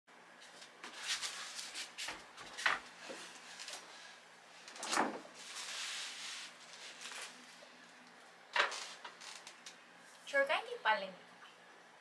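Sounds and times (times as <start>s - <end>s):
wrapped parcels rustling: 4.6s - 7.5s.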